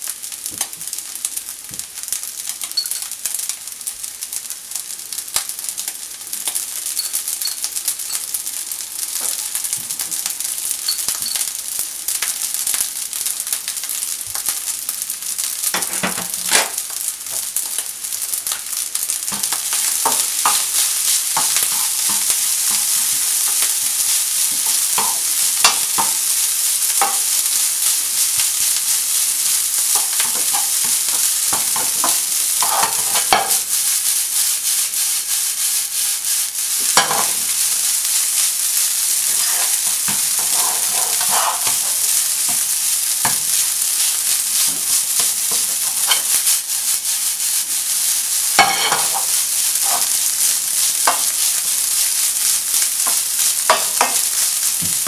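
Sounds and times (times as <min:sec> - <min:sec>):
rice sizzling in frying pan: 0:00.0 - 0:55.0
spatula scraping and tapping pan: 0:19.3 - 0:27.4, 0:29.8 - 0:33.7, 0:36.8 - 0:37.6, 0:39.2 - 0:46.7, 0:48.5 - 0:50.2, 0:51.0 - 0:51.5, 0:53.0 - 0:55.0.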